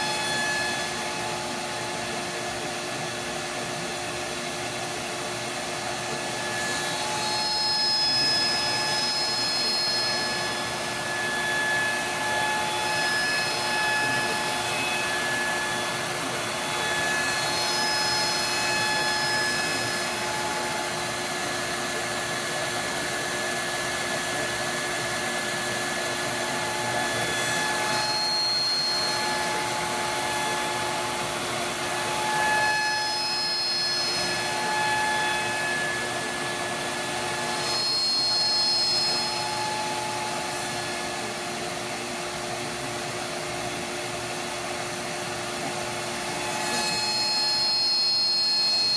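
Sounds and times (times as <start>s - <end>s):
router milling metal: 0.0s - 48.9s
high cutting whine: 5.9s - 42.5s.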